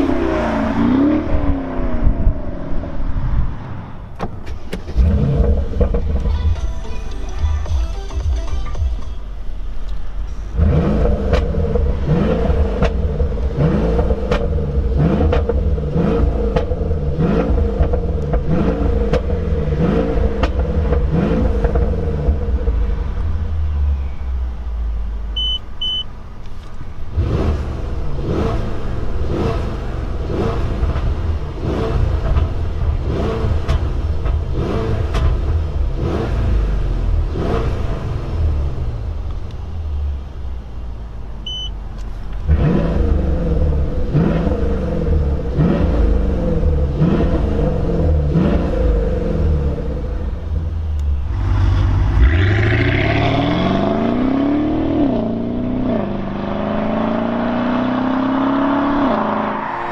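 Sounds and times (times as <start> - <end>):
car engine revving: 0.0 - 6.6, 9.5 - 26.0, 27.0 - 59.9
short beeps: 25.4 - 26.1, 41.4 - 41.8.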